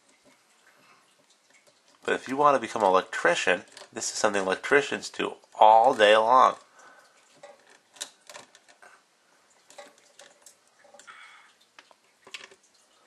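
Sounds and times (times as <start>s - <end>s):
wire nut clicking and scraping: 1.1s - 4.2s, 5.8s - 8.9s, 9.7s - 11.1s.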